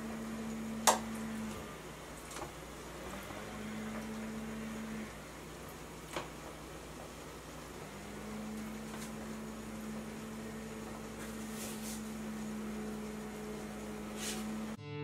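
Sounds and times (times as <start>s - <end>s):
low room hum: 0.0s - 14.8s
corn husk crinkling: 10.8s - 14.8s.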